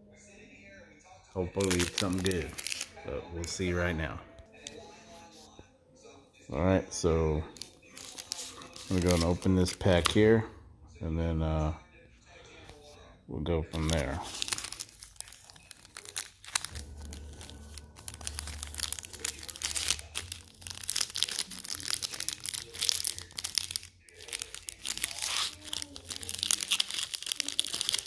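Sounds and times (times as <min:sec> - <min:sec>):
wrapper crinkling and tearing: 0:01.4 - 0:04.0, 0:07.5 - 0:10.4, 0:13.7 - 0:28.0.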